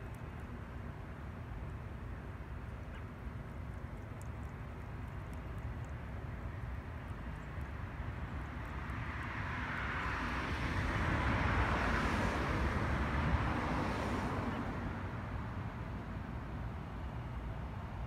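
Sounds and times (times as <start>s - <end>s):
vehicle passing by: 8.4s - 15.1s.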